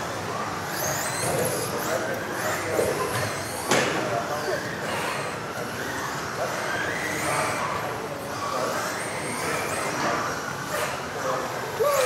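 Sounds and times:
rc car motors whining: 0:00.0 - 0:12.0.

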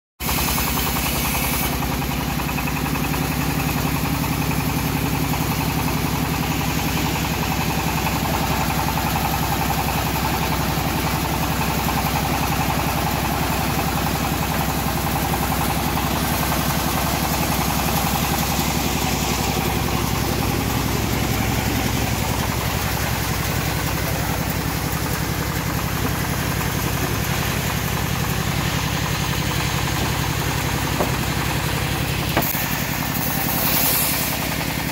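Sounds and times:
sawmill engine running: 0:00.2 - 0:34.9.

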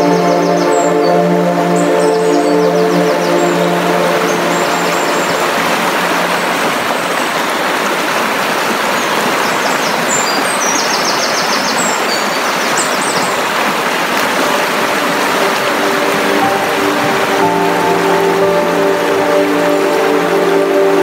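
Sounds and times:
background music: 0:00.0 - 0:07.4, 0:14.4 - 0:21.0
creek flowing over rocks: 0:00.0 - 0:21.0.

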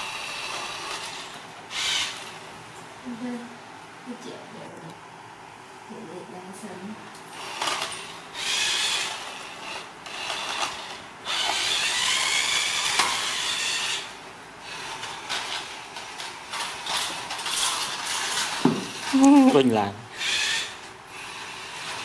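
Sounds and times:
toy car electric motor whirring: 0:00.0 - 0:02.4, 0:07.3 - 0:22.0.

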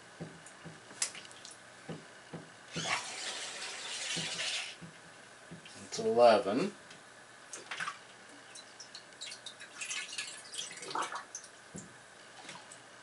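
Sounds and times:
water dripping and splashing: 0:07.5 - 0:12.8.

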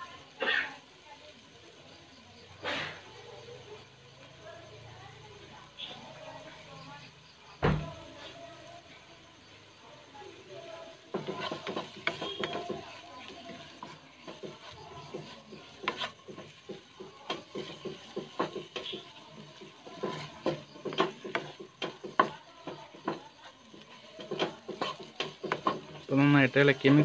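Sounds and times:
wooden spatula scraping a wok: 0:02.4 - 0:03.9, 0:10.3 - 0:27.0
spatula knocking against pan: 0:11.0 - 0:26.1.

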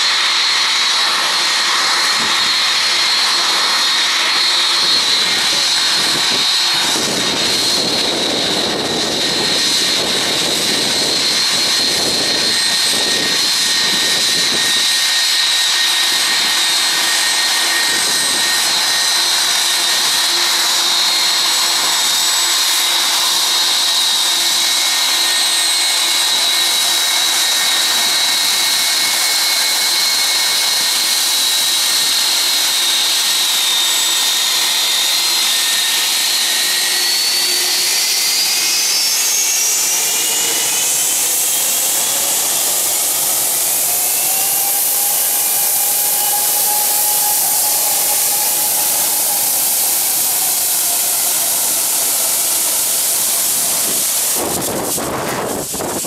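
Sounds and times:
jet engines whining: 0:00.0 - 0:56.0
rushing hiss: 0:40.0 - 0:56.0.

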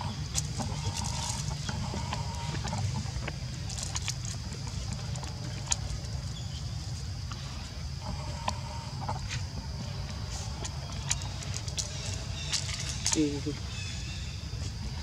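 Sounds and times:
dry leaves crackling: 0:00.0 - 0:07.1, 0:10.3 - 0:14.2.

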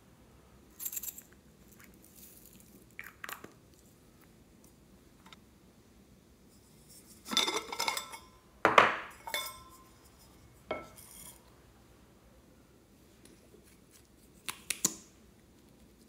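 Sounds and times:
objects clinking on glass dish: 0:07.0 - 0:11.4.

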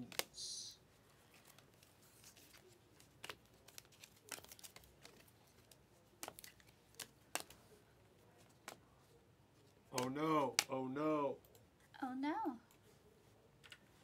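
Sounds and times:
trading cards flipping: 0:01.3 - 0:07.8, 0:09.9 - 0:10.8
card edge snapping against stack: 0:10.0 - 0:10.7.

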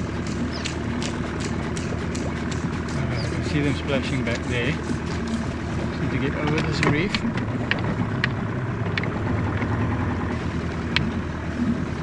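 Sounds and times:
sharp ticks: 0:00.0 - 0:05.4
electric trolling motor hum: 0:00.0 - 0:12.0
water against boat hull: 0:00.0 - 0:12.0.

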